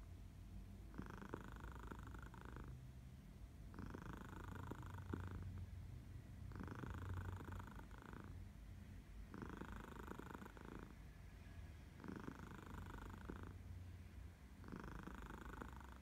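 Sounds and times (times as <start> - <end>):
cat purring: 0.8 - 2.8, 3.7 - 5.7, 6.5 - 8.4, 9.3 - 11.0, 12.0 - 13.6, 14.6 - 16.0.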